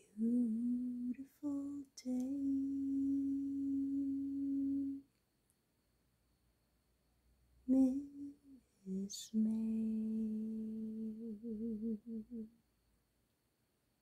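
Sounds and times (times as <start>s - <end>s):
person humming a slow tune: 0.0s - 5.1s, 7.7s - 12.5s.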